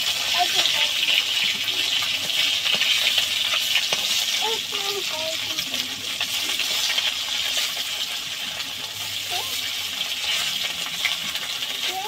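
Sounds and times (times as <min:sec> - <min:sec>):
fish sizzling in hot oil: 0:00.0 - 0:12.0
metal spatula scraping a pan: 0:05.7 - 0:11.7.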